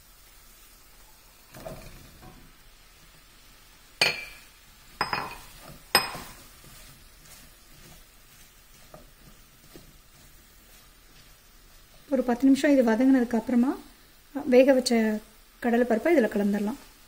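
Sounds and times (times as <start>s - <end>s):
faint sizzle: 0.0s - 17.0s
vegetables tumbling into a pan: 1.4s - 2.6s, 4.1s - 12.8s
spatula clinking against a pan: 5.0s - 6.5s.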